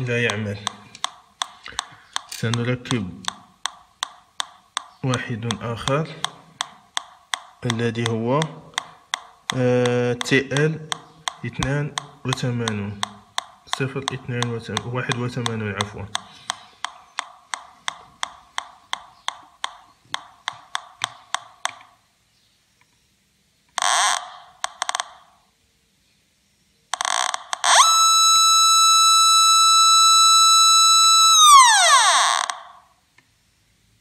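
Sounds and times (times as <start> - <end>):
metal detector electronic clicks: 0.0 - 21.9, 23.7 - 25.3, 26.9 - 32.7
high electronic tone: 27.0 - 32.6.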